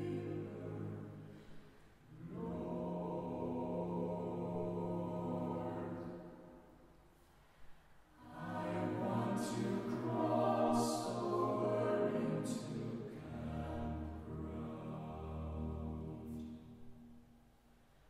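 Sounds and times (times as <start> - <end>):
choir singing unaccompanied: 0.0 - 1.3, 2.1 - 6.6, 8.2 - 16.8.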